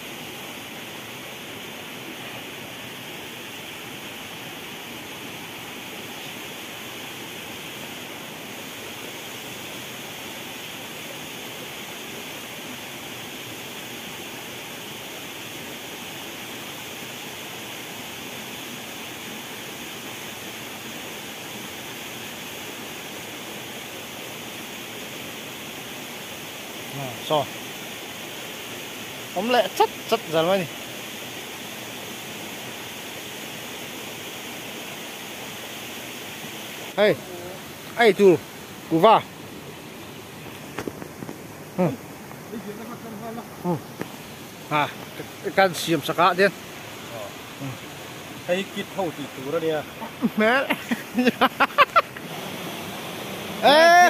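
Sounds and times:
stream water flowing over rocks: 0.0s - 54.0s.

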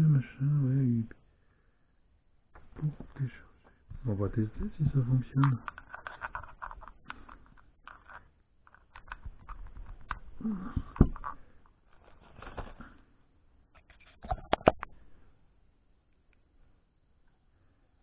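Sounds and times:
plastic rustling: 5.6s - 13.0s.

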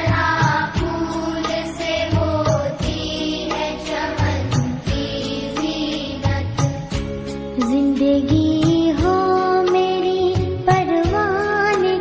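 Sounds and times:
film song music: 0.0s - 8.2s
percussion strikes: 0.0s - 11.2s.

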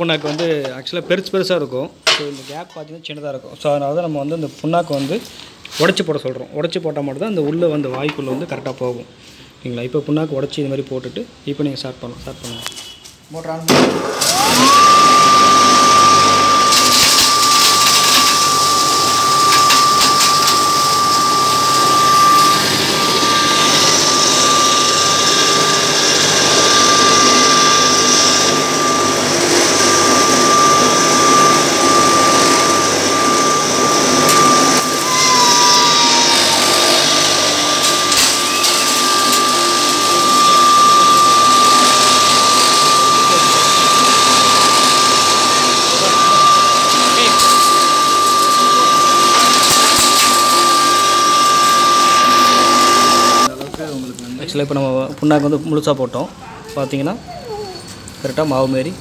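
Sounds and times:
pulverizer grinding with high whine: 14.2s - 53.5s.

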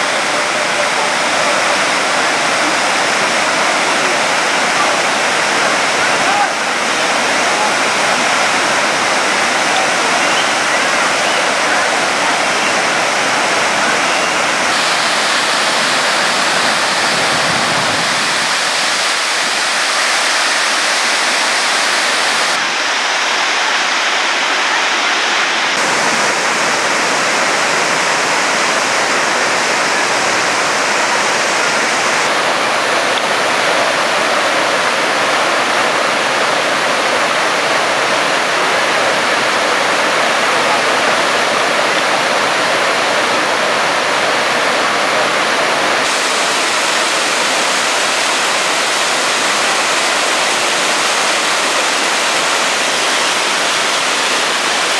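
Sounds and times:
river rushing over rocks: 0.0s - 54.9s.

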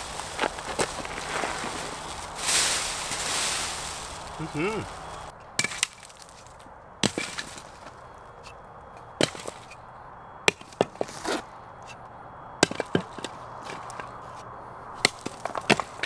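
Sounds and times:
sharp knocks and cracks: 5.6s - 8.6s, 9.2s - 9.8s, 12.6s - 14.1s, 15.0s - 16.0s.

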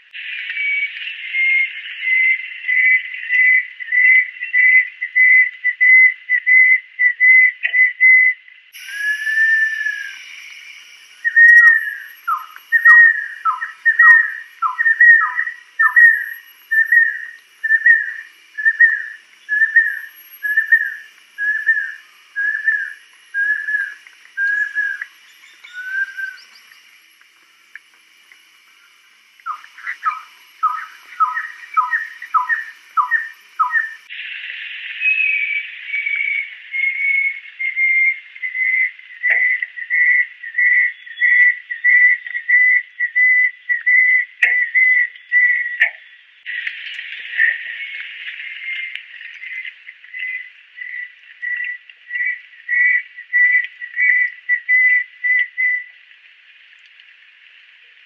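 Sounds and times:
bird whistling song: 0.1s - 27.3s, 28.7s - 34.2s, 35.0s - 46.2s, 47.5s - 55.9s
faint high hiss: 8.7s - 43.8s.

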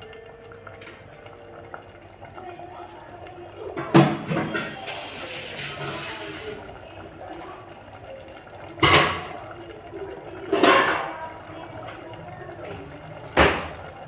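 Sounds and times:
gravy cooking in a pot: 0.0s - 14.0s
hiss: 4.8s - 6.6s.

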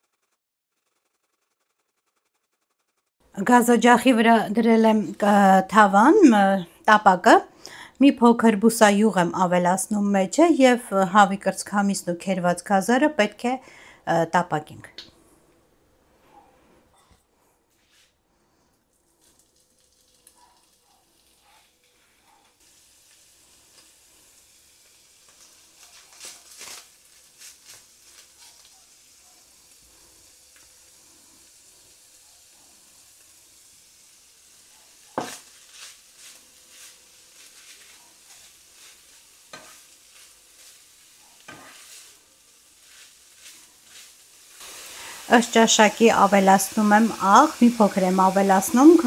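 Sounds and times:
food sizzling in a pan: 3.4s - 12.2s, 19.0s - 49.0s
spatula scraping and clicking: 35.2s - 40.8s, 41.4s - 42.1s, 42.8s - 44.2s.

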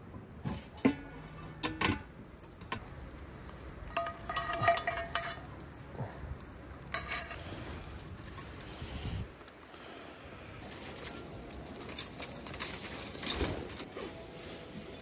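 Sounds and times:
grill lid metal clatter: 0.8s - 2.9s, 3.8s - 5.6s, 6.9s - 7.4s
tongs clinking on skillet: 3.6s - 5.7s, 6.8s - 7.4s.

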